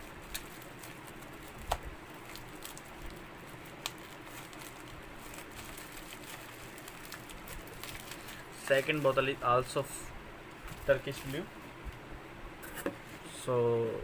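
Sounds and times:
bubble wrap crinkling: 0.0s - 9.9s, 10.5s - 11.6s.

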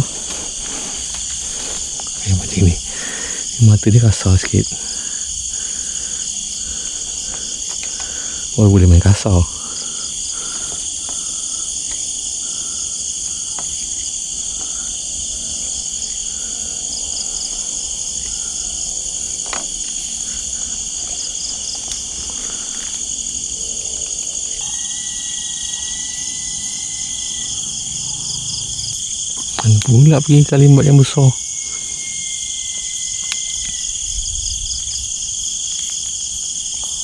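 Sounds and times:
crickets and insects chirping: 0.0s - 37.0s
thin whistle-like tone: 24.6s - 27.6s.

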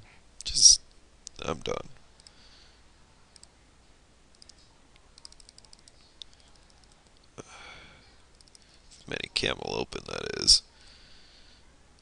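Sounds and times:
computer mouse clicks: 2.2s - 2.4s, 3.3s - 3.5s, 4.3s - 7.3s, 8.3s - 8.7s.

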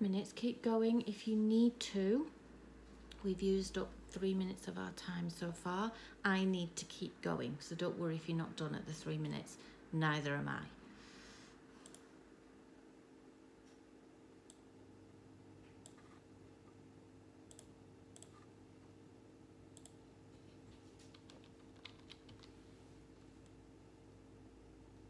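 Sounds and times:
faint steady hum: 0.0s - 25.0s
faint clicks: 11.8s - 12.0s.

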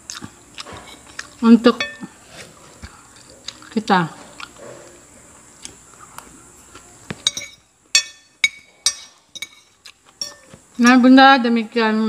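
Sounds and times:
sharp ringing clinks: 10.2s - 10.5s.

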